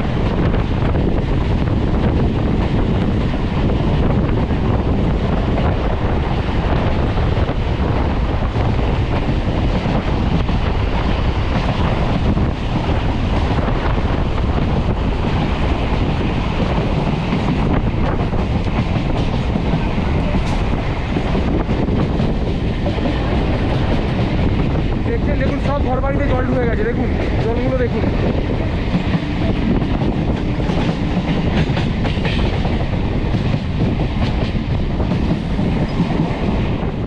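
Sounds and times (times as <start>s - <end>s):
train wheels rumbling on rails: 0.0s - 37.0s
wind on microphone: 0.0s - 37.0s.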